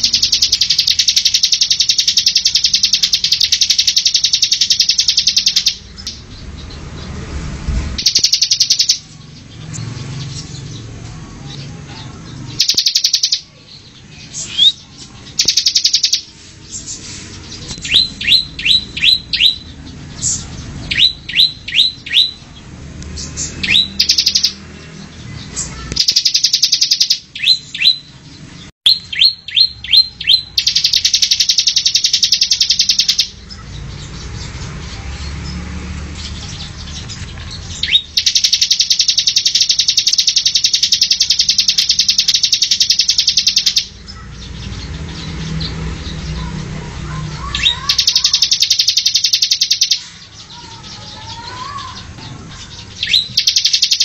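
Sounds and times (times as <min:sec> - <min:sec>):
bird rattling trills: 0:00.0 - 0:06.2, 0:08.0 - 0:09.1, 0:12.5 - 0:13.4, 0:14.4 - 0:19.6, 0:30.6 - 0:33.6, 0:36.9 - 0:44.3, 0:47.4 - 0:52.0, 0:52.6 - 0:54.0.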